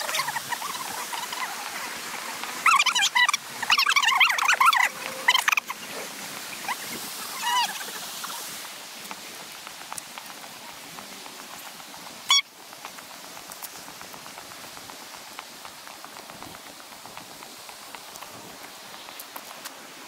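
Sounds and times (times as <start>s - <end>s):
creek running over rocks: 0.0s - 20.0s
light ticks: 9.0s - 19.9s.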